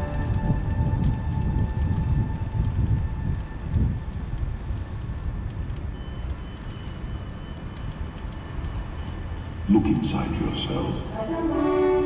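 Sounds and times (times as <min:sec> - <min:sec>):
wind on microphone: 0:00.0 - 0:05.8
distant fireworks rumble: 0:00.0 - 0:10.8
fireworks crackles: 0:00.0 - 0:10.8.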